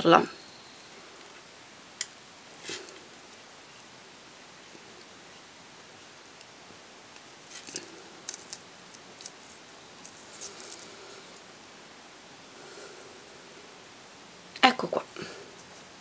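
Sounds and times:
thread rustling through beads: 7.2 - 11.8.

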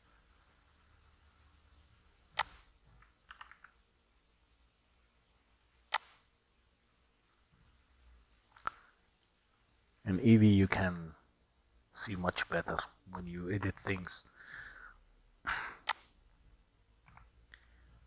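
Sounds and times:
keyboard and mouse clicks: 2.3 - 3.8, 5.9 - 6.2, 15.8 - 16.2, 17.0 - 17.4.

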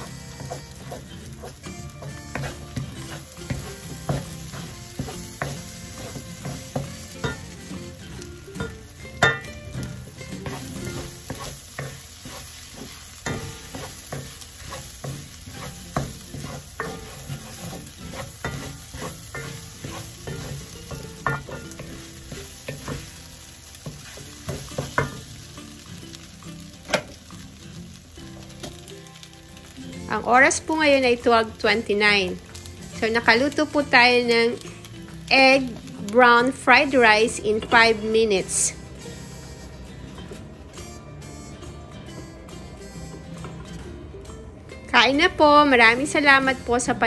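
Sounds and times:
rice sizzling: 0.0 - 43.6
wooden spatula scraping a pan: 10.4 - 23.1.

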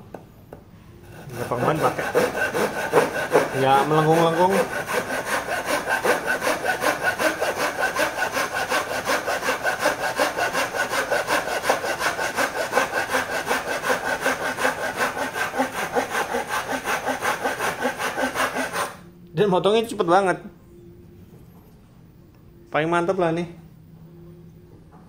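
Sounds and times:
hand saw cutting wood: 1.0 - 19.0.

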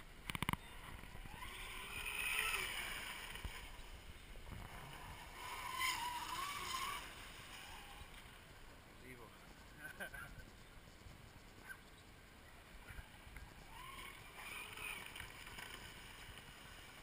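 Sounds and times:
toy speedboat motor whining: 0.4 - 3.9, 4.7 - 8.4, 13.0 - 17.0.

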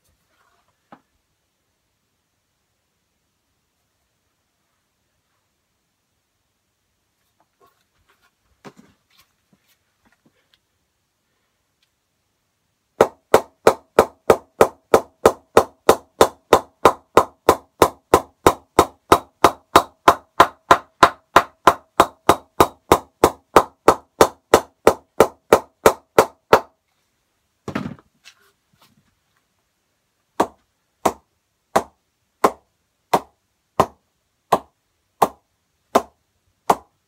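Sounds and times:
mallet striking cricket bat: 30.4 - 31.2, 31.8 - 35.4, 36.0 - 36.9.

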